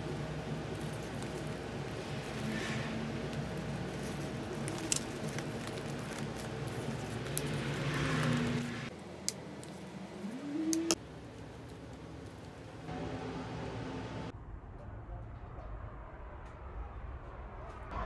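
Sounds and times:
wrapping paper rustling: 0:00.0 - 0:08.6
room hum: 0:00.0 - 0:18.0.

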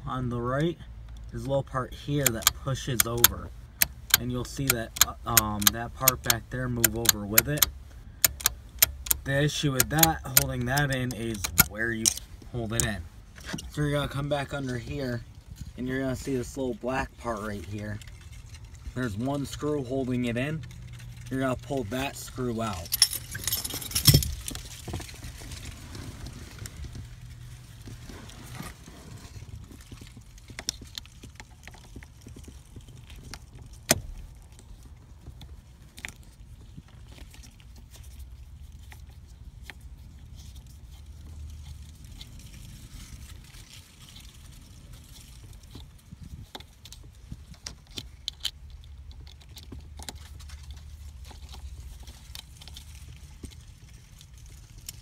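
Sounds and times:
low steady hum: 0:00.0 - 0:55.0
screwdriver metallic clicks and scrapes: 0:02.1 - 0:14.0.

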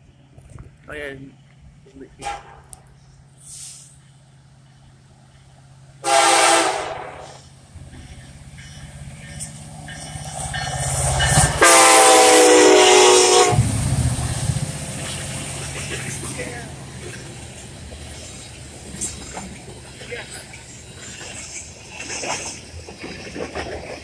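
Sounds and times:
diesel engines rumbling: 0:00.0 - 0:23.5
locomotive air horn blasts: 0:06.0 - 0:07.4, 0:11.5 - 0:13.7.

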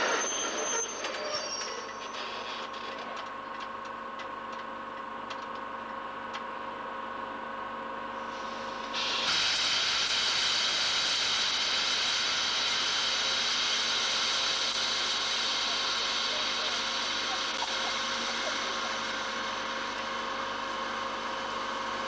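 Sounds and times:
train hum: 0:00.0 - 0:22.0
air brakes hissing: 0:08.2 - 0:19.0.

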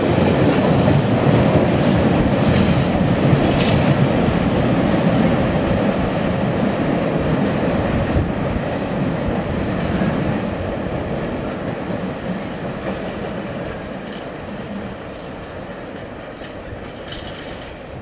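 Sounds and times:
freight train wheels rolling on track: 0:00.0 - 0:18.0
faint rail clicks: 0:01.7 - 0:02.8, 0:03.4 - 0:04.0, 0:05.1 - 0:05.5, 0:12.3 - 0:18.0.

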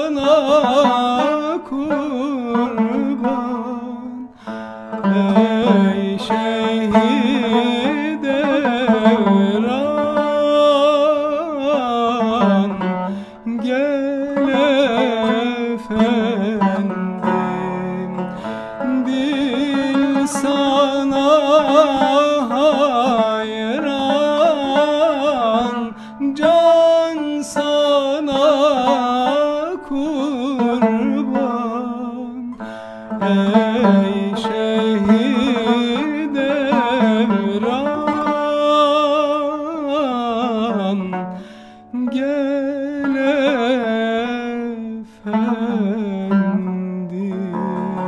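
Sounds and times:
man singing: 0:00.0 - 0:48.0
plucked lute: 0:00.0 - 0:48.0.

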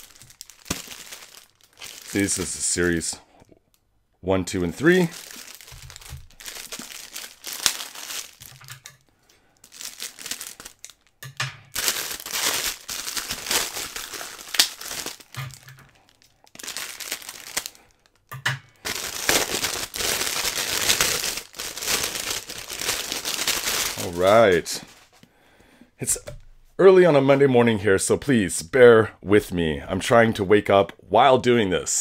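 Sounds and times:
packaging crinkling: 0:00.0 - 0:03.2, 0:04.8 - 0:25.2.

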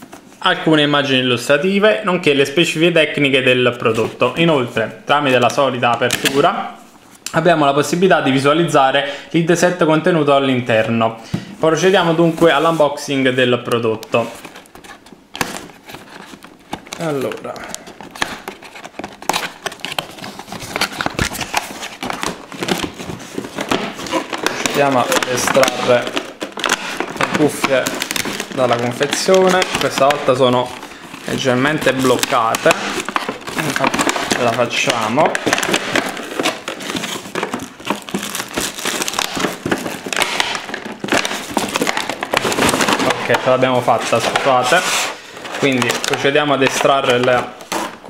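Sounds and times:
cardboard packaging rustling: 0:11.6 - 0:48.0
cardboard box rustling and scraping: 0:35.2 - 0:46.0.

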